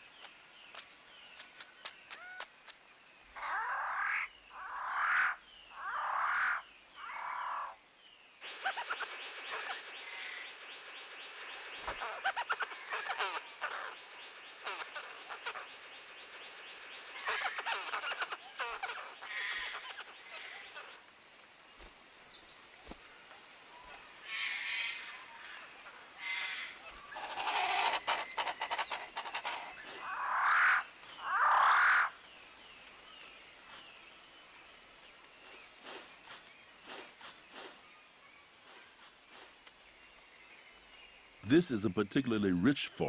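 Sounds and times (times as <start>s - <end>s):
bird calls: 0.0s - 7.8s, 8.4s - 23.1s, 23.7s - 43.0s
loud animal calls: 17.2s - 21.0s, 26.2s - 32.2s.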